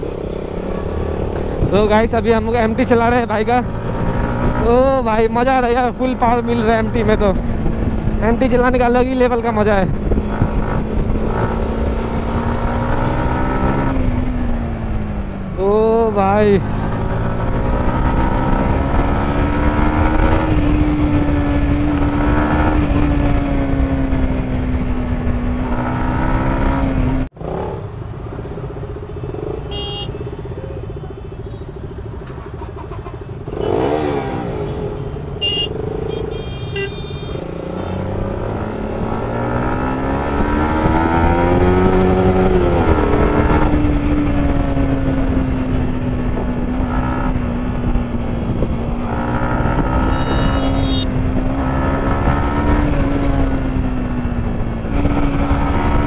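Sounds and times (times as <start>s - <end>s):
motorcycle engine revving: 0.0s - 56.0s
motorcycles droning: 0.0s - 56.0s
short horn toots: 29.7s - 30.2s, 50.0s - 51.1s.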